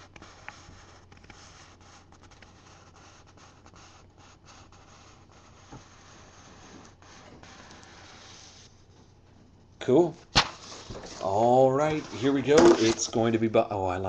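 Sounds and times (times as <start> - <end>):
steady hiss and hum: 0.0 - 14.0
paper rustling: 10.3 - 13.3.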